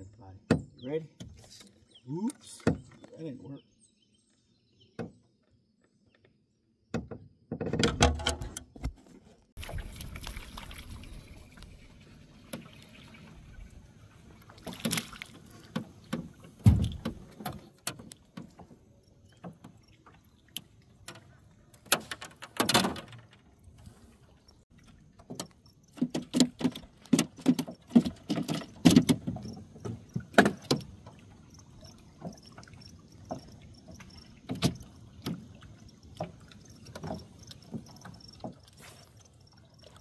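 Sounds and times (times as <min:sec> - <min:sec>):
fish splashing at water surface: 0:09.6 - 0:13.7, 0:14.4 - 0:15.8
knocks and rattles: 0:25.2 - 0:30.9.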